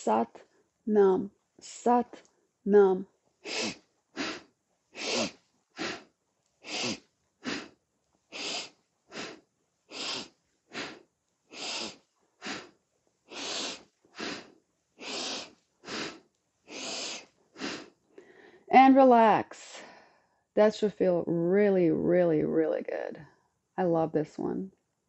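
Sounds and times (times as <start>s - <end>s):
woman breathing hard rhythmically: 3.4s - 18.7s, 19.8s - 20.4s.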